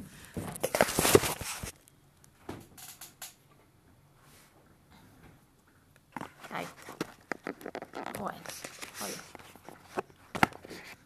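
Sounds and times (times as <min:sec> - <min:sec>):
phone handling rustle: 0:00.6 - 0:01.7, 0:06.2 - 0:11.0.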